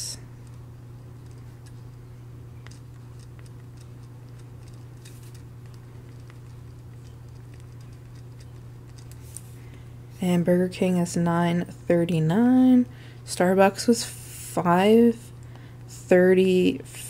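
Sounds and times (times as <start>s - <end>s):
low hum: 0.0s - 17.0s
pen scratching on paper: 2.6s - 9.2s.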